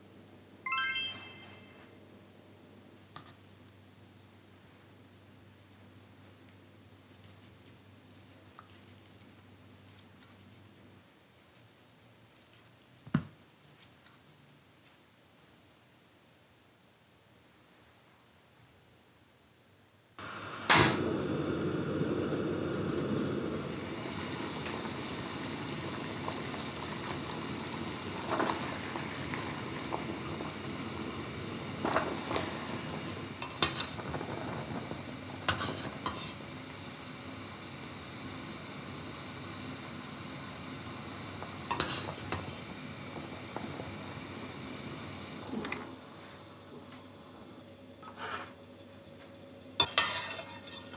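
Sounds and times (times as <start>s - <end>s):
water boiling in a pot: 20.2s - 50.9s.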